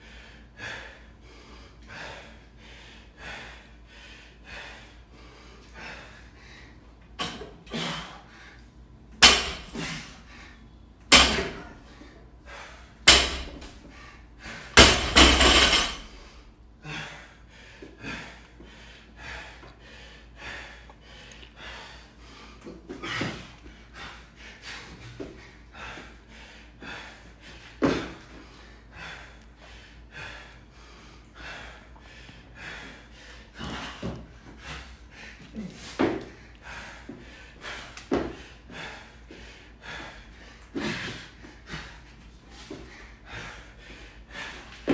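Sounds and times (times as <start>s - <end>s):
barbell thudding on rubber floor: 9.2s - 9.8s, 11.1s - 11.7s, 13.1s - 13.7s, 14.8s - 16.1s.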